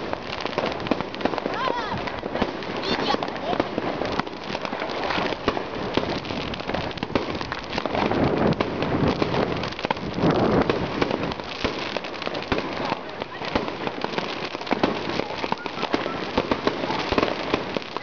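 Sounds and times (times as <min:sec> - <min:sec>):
fireworks crackling: 0:00.0 - 0:18.0
loud firework cracks: 0:00.0 - 0:18.0.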